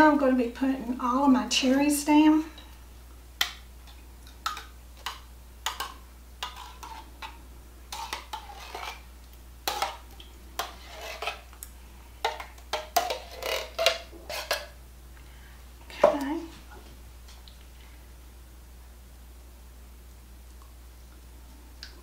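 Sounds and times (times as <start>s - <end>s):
spoon scraping metal can: 6.4s - 7.3s, 7.9s - 9.1s, 9.7s - 10.0s, 10.6s - 11.5s, 12.3s - 14.8s.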